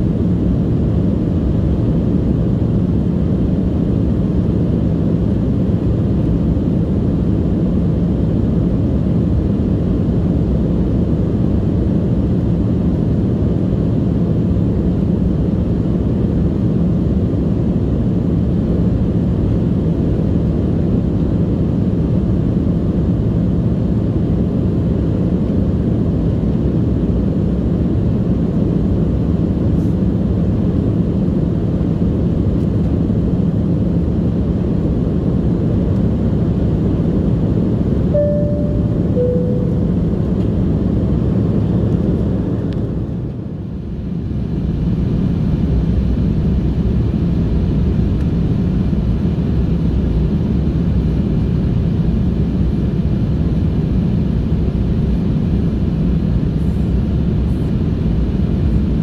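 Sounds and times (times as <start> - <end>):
jet airliner cabin noise: 0.0 - 59.0
two-note falling cabin chime: 38.2 - 40.2.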